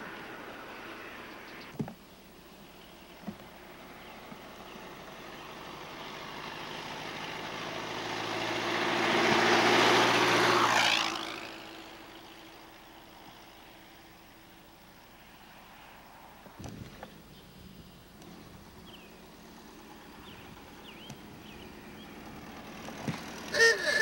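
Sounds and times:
race car engine passing by: 0:04.6 - 0:13.1, 0:18.3 - 0:24.0.

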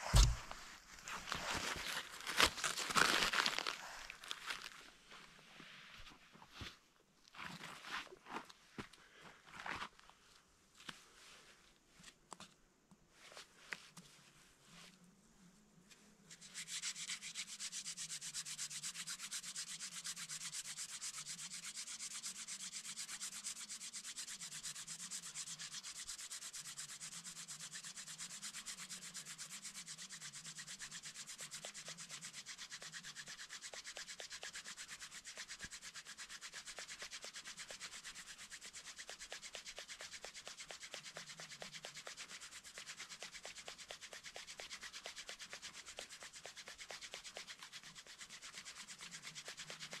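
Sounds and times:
wooden spindle rubbing on hearth: 0:16.4 - 0:50.0.

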